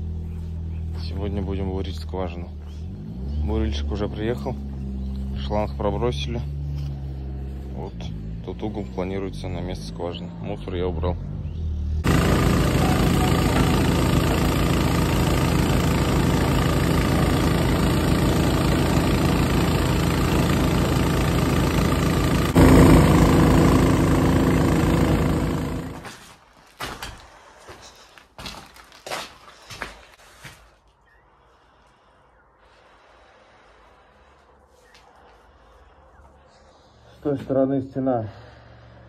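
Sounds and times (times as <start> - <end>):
drilling rig engine running: 12.0 - 26.2.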